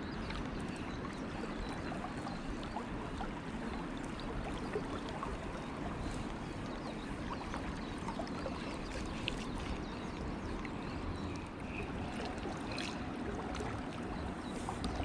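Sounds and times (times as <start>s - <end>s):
water splashing ticks: 7.3s - 15.0s.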